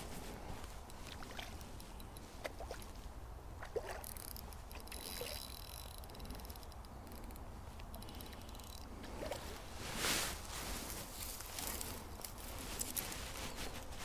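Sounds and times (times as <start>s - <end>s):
water sloshing and splashing: 0.0s - 5.9s, 8.9s - 13.5s.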